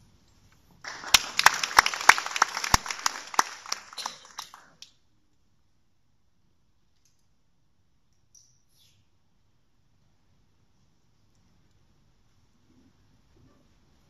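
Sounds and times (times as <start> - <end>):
audience applause: 0.8 - 4.8.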